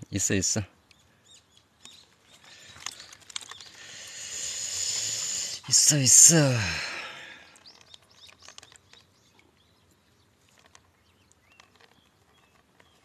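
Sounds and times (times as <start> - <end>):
bird chirps: 0.8 - 5.2, 6.5 - 13.0
faint drips and ticks: 0.8 - 6.5, 7.4 - 13.0.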